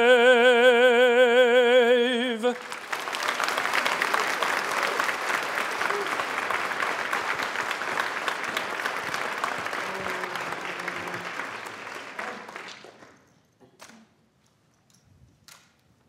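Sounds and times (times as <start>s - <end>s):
audience applauding: 2.2s - 13.3s.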